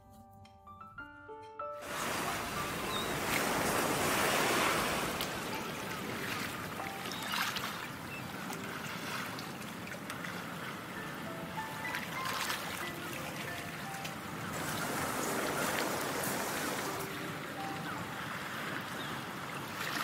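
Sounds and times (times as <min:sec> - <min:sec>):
waves breaking on pebbly beach: 0:01.8 - 0:20.0.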